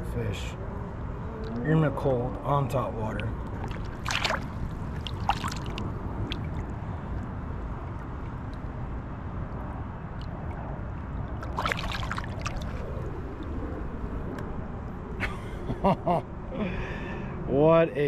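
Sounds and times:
steady low rumble: 0.0 - 17.5
water splashing and sloshing: 2.3 - 14.6.

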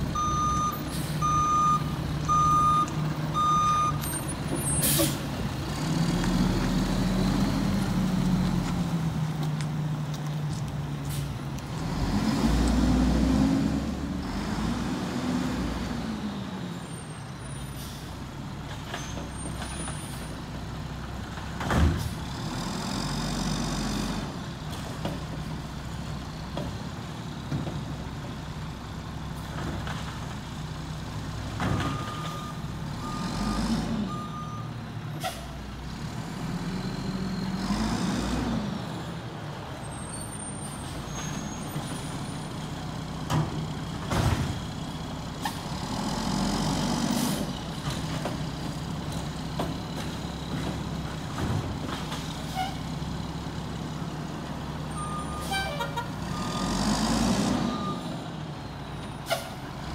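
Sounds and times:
reversing beeps: 0.2 - 4.1, 31.8 - 34.7, 54.9 - 55.5, 56.3 - 56.8, 57.6 - 58.2
garbage truck diesel engine revving: 11.7 - 16.6, 42.6 - 55.2, 56.0 - 59.0.

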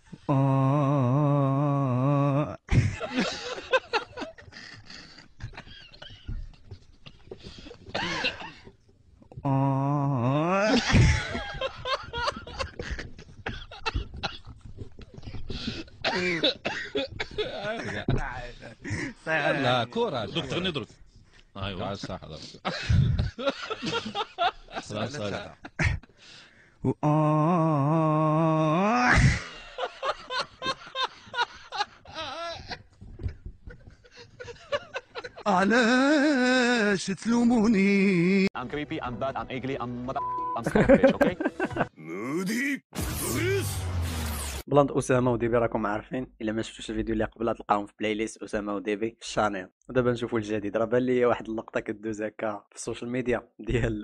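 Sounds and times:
men laughing: 2.7 - 8.7, 10.4 - 20.8, 21.8 - 26.4, 28.0 - 36.8, 40.6 - 43.5
loud burst of sound: 43.0 - 44.7.

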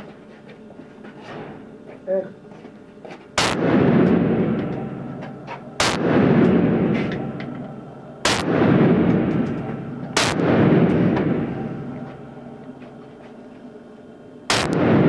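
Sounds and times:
rifle shots with echo: 3.4 - 12.8, 14.5 - 15.0.

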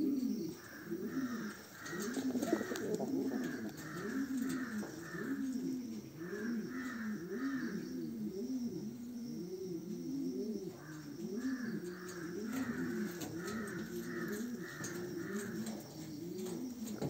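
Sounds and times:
pigeons cooing: 0.0 - 17.0.

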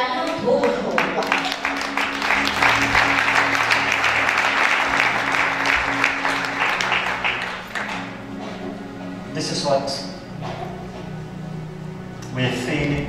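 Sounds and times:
audience applauding: 0.0 - 8.7
background music with held tones: 0.0 - 13.0.

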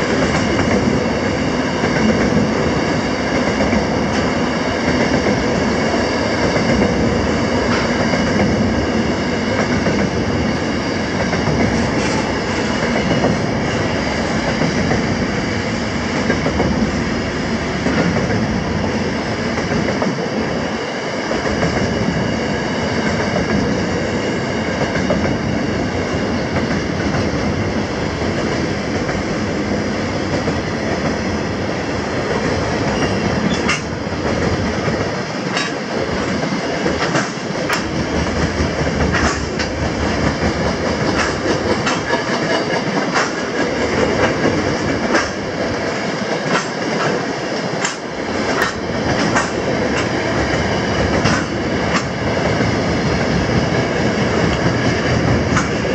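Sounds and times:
train wheels rumbling on rail: 0.0 - 55.9
wheels clicking over rail joints: 32.9 - 45.5.

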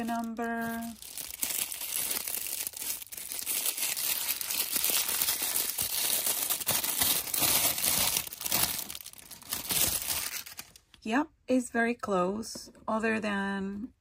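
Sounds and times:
plastic wrapping crinkling and tearing: 0.0 - 11.0.

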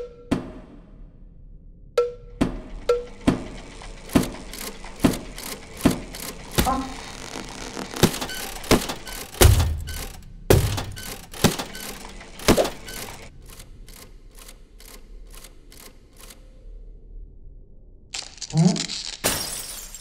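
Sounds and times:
cartoon glass cracking: 18.2 - 20.0.

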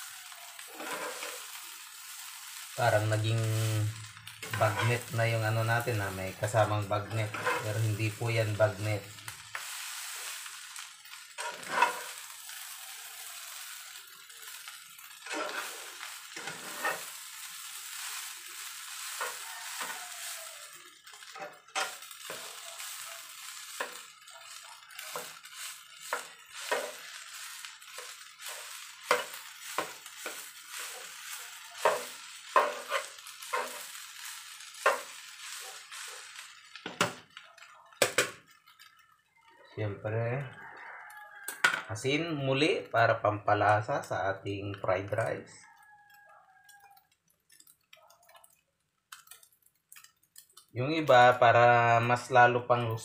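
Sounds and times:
rice sizzling in a frying pan: 0.0 - 53.0
spatula scraping and tapping pan: 0.5 - 2.7, 3.4 - 5.2, 5.8 - 13.8, 14.6 - 39.0.

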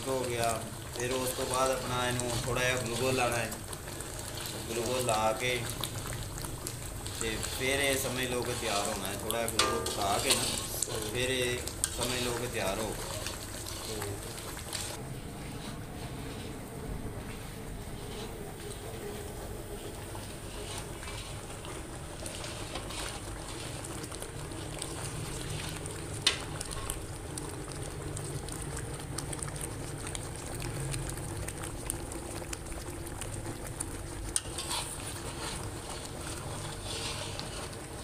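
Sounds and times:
thick mixture bubbling and sizzling: 0.0 - 38.0
metal spatula scraping pan: 7.1 - 13.9, 20.4 - 23.9, 34.4 - 37.8
low steady rumble: 14.2 - 37.9.

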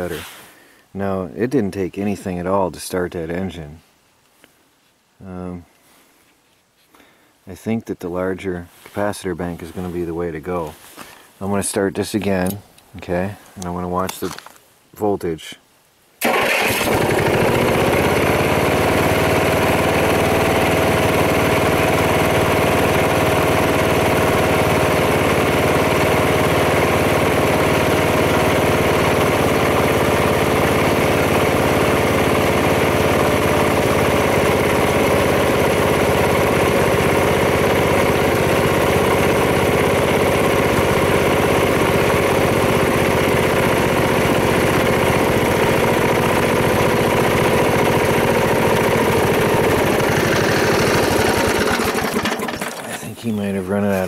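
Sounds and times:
gasoline engine running: 16.2 - 54.0.

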